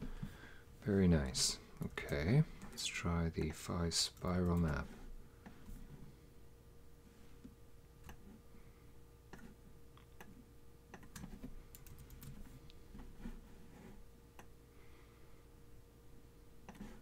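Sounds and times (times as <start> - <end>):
keyboard and mouse clicking: 10.9 - 12.4.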